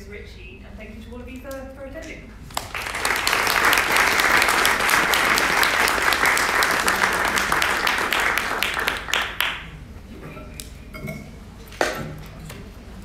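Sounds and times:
audience applause: 2.5s - 9.7s.

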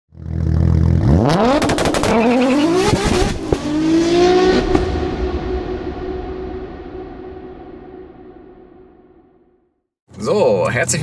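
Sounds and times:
car engine accelerating hard: 0.2s - 6.6s.

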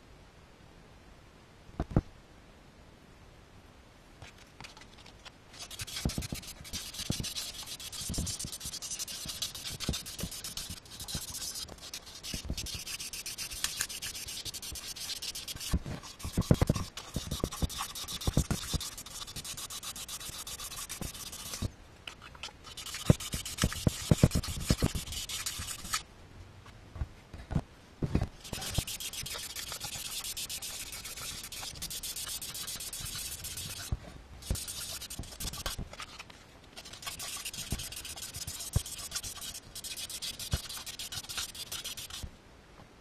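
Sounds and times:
sandpaper rubbing metal: 5.6s - 21.7s, 22.7s - 26.0s, 28.4s - 36.2s, 36.8s - 42.3s.

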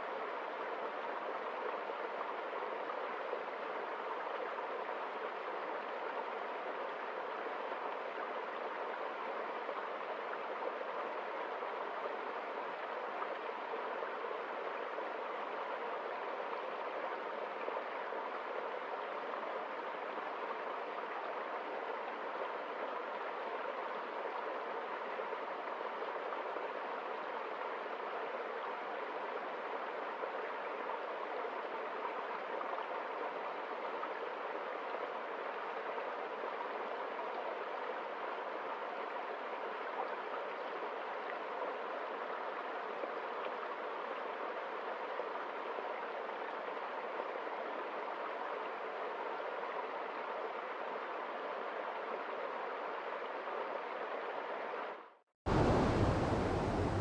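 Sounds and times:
stream babbling over rocks: 55.5s - 57.0s.

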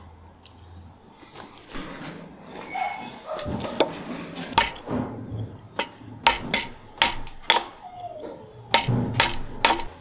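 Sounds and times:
sharp knocks with metallic ring: 4.5s - 5.1s, 5.8s - 7.8s, 8.7s - 10.0s.

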